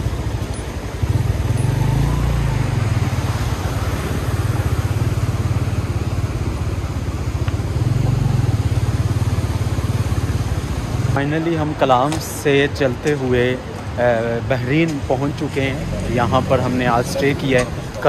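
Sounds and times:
motorcycle engine running: 0.0s - 11.2s
constant rushing noise: 0.0s - 18.0s.

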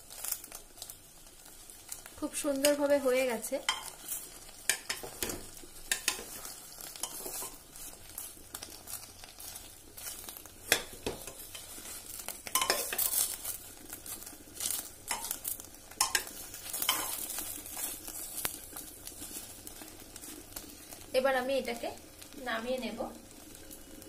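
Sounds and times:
light sizzling: 0.0s - 24.0s
metal spatula scraping pot: 3.6s - 8.0s, 10.0s - 13.5s, 16.0s - 18.3s.

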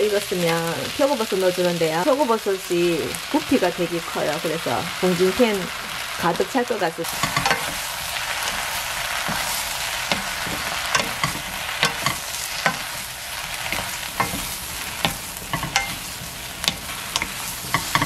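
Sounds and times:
vegetables sizzling in oil: 0.0s - 18.0s
spatula clacking against pan: 7.1s - 18.0s.

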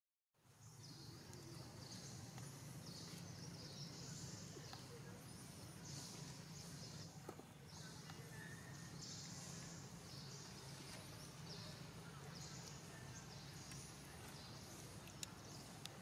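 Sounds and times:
steady low hum: 0.4s - 16.0s
small clicks: 15.0s - 16.0s.

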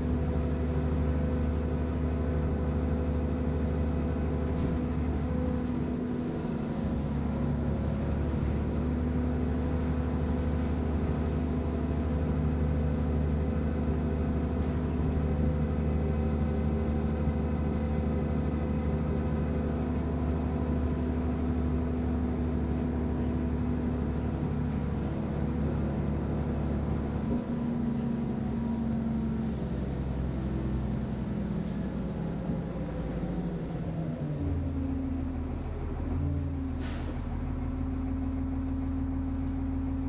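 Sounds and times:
bus engine humming: 0.0s - 40.0s
road noise: 0.0s - 40.0s.

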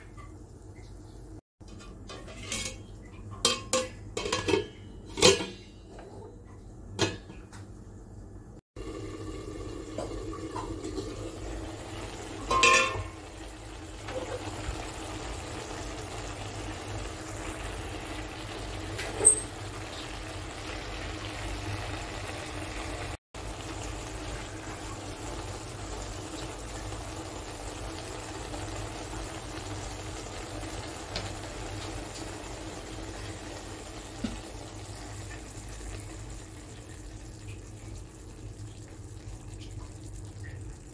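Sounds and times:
steel lid clanking: 1.6s - 6.1s, 12.4s - 13.2s
curry bubbling: 8.8s - 40.9s.

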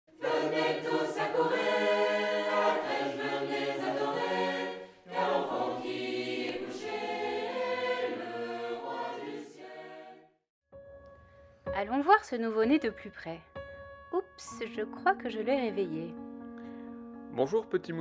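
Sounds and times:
choir singing sustained notes: 0.1s - 10.4s.

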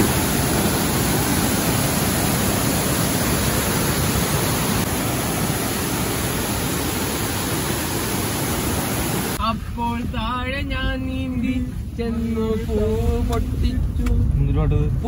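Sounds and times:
waterfall roaring: 0.0s - 9.4s.

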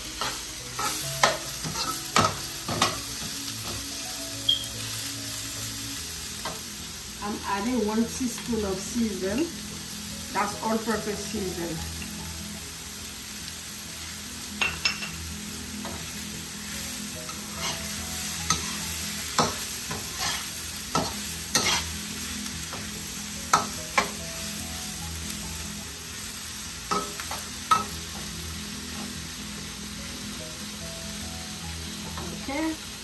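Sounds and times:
food sizzling: 0.0s - 33.0s
metal spatula scraping a wok: 17.3s - 22.0s.

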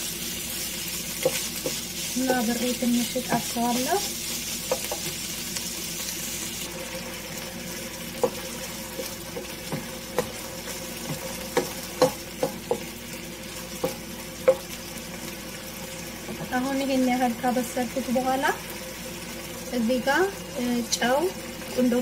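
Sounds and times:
chicken sizzling in oil: 0.0s - 22.0s
wooden spatula scraping a wok: 0.6s - 5.3s.

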